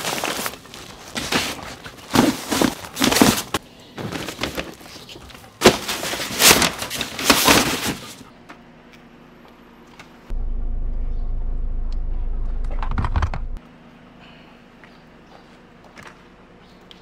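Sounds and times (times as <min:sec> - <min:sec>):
padded fabric bags rustling: 0:00.0 - 0:04.9.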